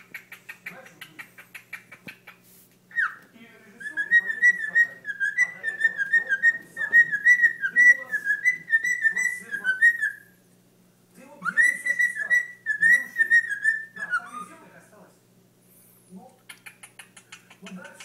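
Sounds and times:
cockatiel whistling: 2.9 - 10.3, 11.4 - 14.5.

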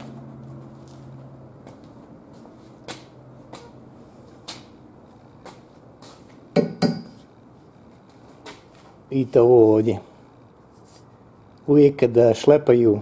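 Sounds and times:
loud knocks: 6.6 - 7.2.

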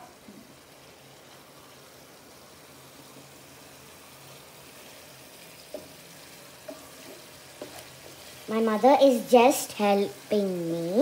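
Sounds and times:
sauce bubbling in a frying pan: 0.0 - 11.0.

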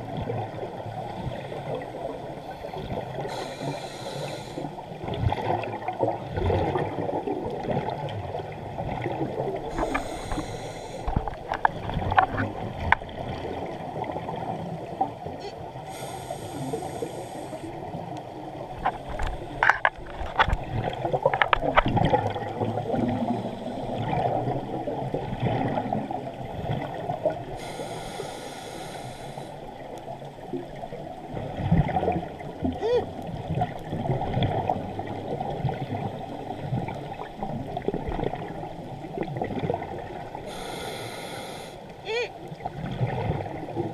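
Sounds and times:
muffled underwater rumble: 0.0 - 43.9
regulator breathing hiss and bubbles: 1.3 - 4.9, 9.6 - 11.4, 15.4 - 17.8, 27.4 - 29.8, 40.3 - 42.3.

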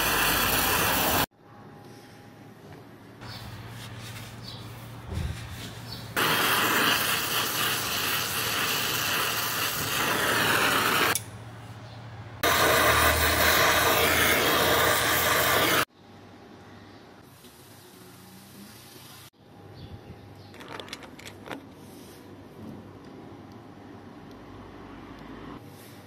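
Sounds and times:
torch flame hissing: 0.0 - 1.3, 6.2 - 11.2, 12.4 - 15.9.

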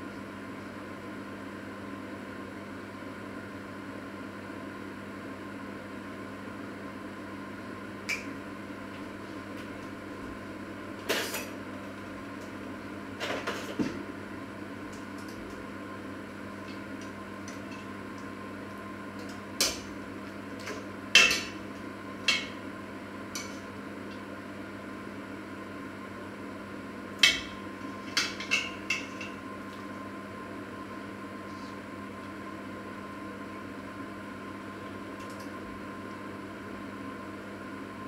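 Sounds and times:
electrical hum: 0.0 - 38.0.

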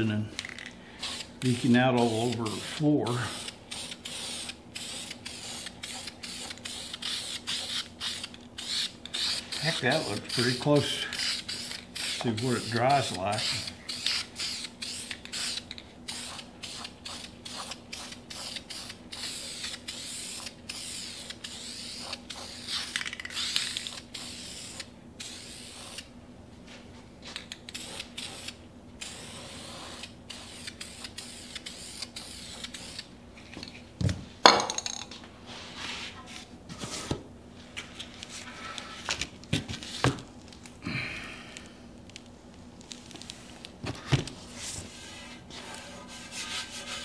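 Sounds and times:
spray can hissing: 3.4 - 10.6, 11.2 - 26.1, 27.7 - 33.1.

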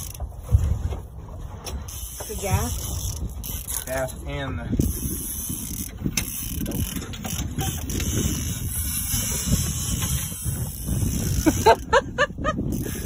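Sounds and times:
fishing reel ratchet clicking: 1.9 - 11.9, 12.7 - 13.0.

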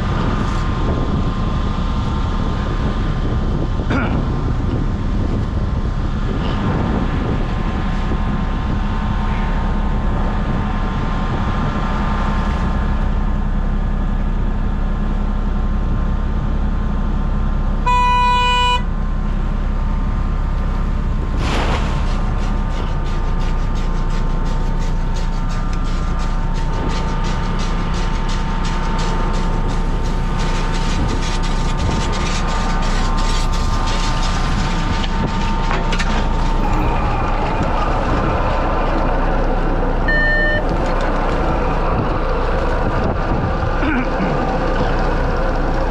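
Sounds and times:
boat engine running: 0.0 - 45.9
steady machine whine: 0.0 - 45.9
wind: 0.0 - 45.9
short horn toot: 17.9 - 18.9.

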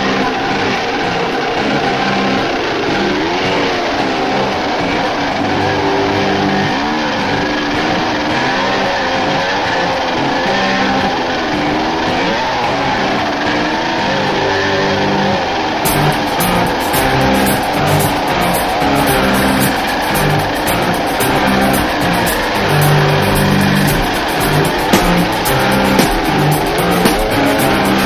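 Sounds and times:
dirt bike engine running: 0.0 - 28.0
sharp knocks: 21.8 - 27.4.

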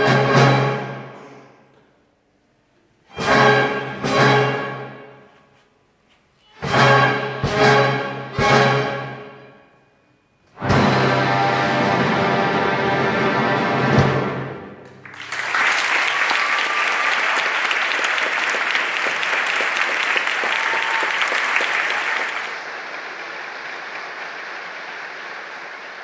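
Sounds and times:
audience applause: 14.8 - 26.0.

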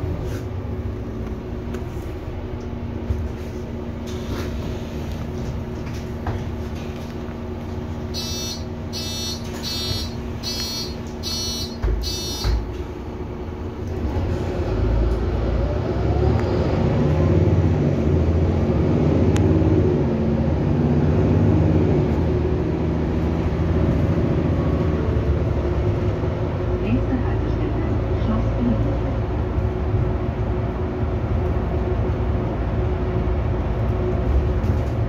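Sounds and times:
bus engine running: 0.0 - 35.0
bus door warning beeps: 8.1 - 12.9
bus doors shutting thumps: 8.2 - 13.1.

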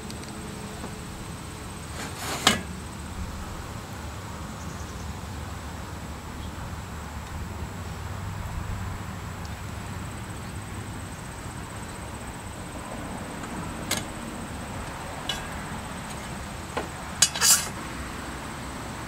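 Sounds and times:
steady hiss: 0.0 - 19.0
metal clatter: 1.9 - 2.7, 15.2 - 16.3, 17.2 - 17.8.

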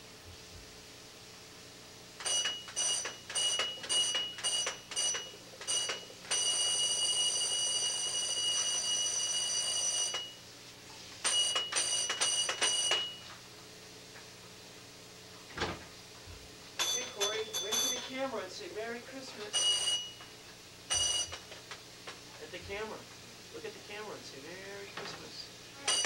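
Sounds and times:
toy ringing high tone: 2.2 - 10.4, 16.8 - 18.1, 19.5 - 20.2, 20.9 - 21.4, 25.8 - 26.0.

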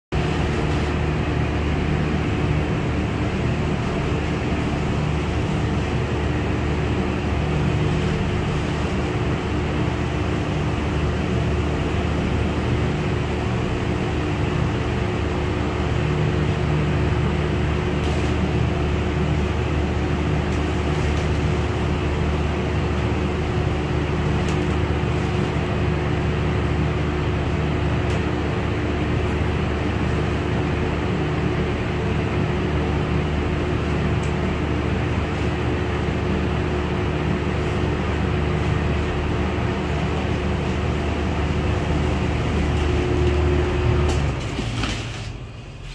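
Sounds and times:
motor droning: 39.3 - 44.4.

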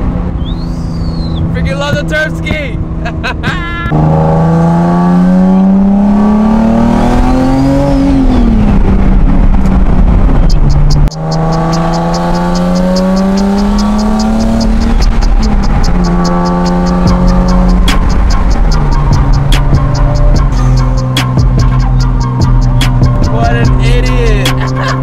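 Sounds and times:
car engine revving through gears: 0.0 - 25.0
turbo whistle: 0.4 - 1.5
fast high ticking: 10.4 - 25.0.

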